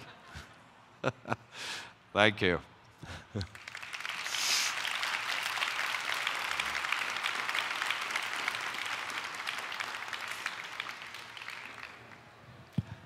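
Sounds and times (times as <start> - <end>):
audience applauding: 3.4 - 12.5.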